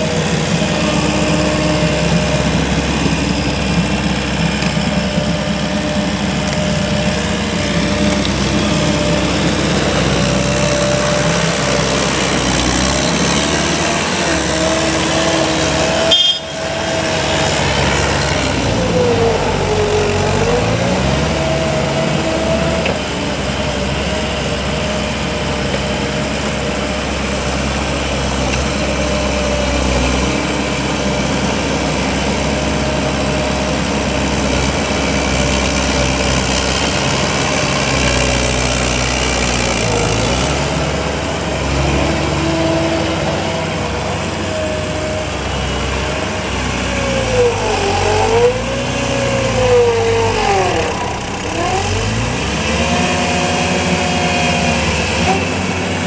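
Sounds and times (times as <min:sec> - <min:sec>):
loader diesel engine under load: 0:00.0 - 0:56.0
engine whine rising and falling: 0:39.9 - 0:56.0.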